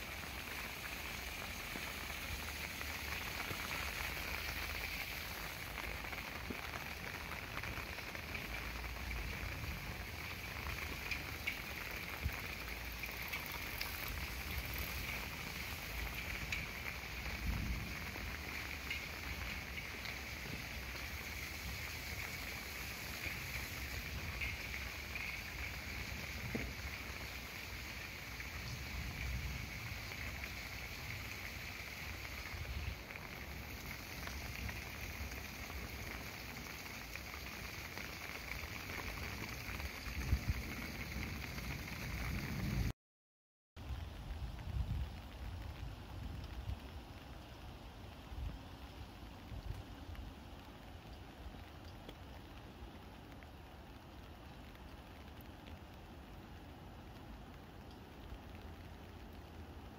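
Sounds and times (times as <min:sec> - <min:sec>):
water pouring from drain: 0:00.0 - 0:42.9.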